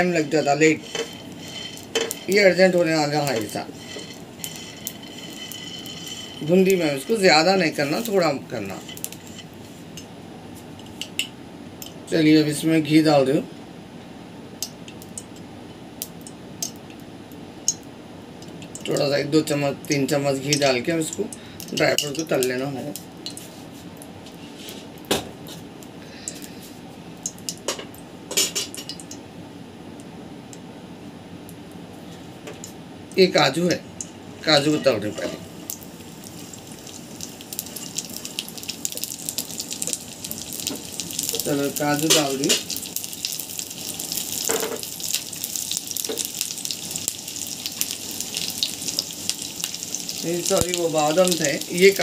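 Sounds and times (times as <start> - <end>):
almonds sizzling in hot fat: 0.0 - 10.0, 18.7 - 23.6, 33.2 - 52.0
dishes and utensils clinking: 0.8 - 2.4, 3.3 - 7.2, 27.6 - 29.0.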